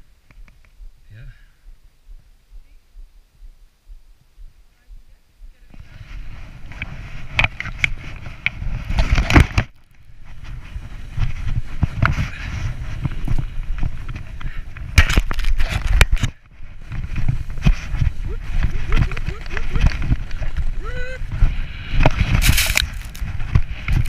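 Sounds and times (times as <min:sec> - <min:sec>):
snowboard scraping over snow: 0:05.8 - 0:09.5, 0:10.1 - 0:16.0, 0:16.6 - 0:24.0.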